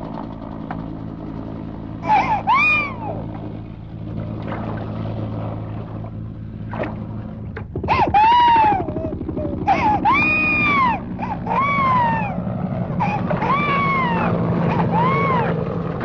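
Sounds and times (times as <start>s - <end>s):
steady low hum: 0.0s - 16.0s
baby crying: 2.0s - 3.2s, 7.9s - 12.4s, 13.0s - 15.6s.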